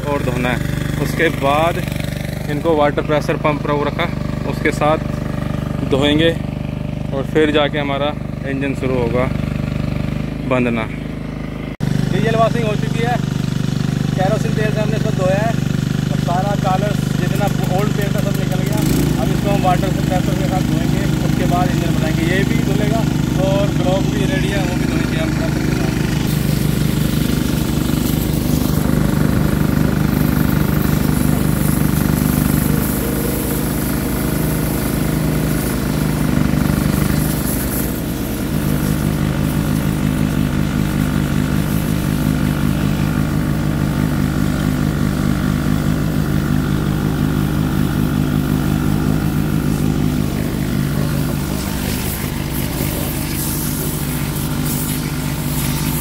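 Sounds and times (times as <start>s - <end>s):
small petrol engine running: 0.0s - 56.0s
water jet spraying on metal: 12.2s - 56.0s.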